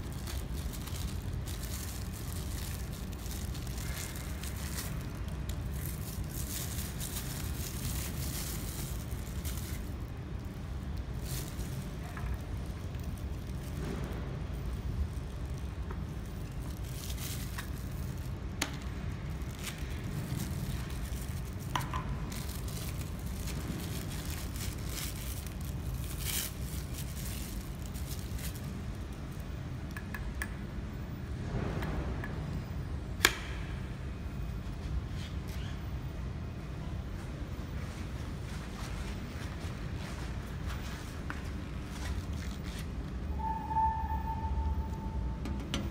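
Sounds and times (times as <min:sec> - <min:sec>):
plastic packaging crinkling: 0:00.0 - 0:29.4
low rumble: 0:42.9 - 0:45.9.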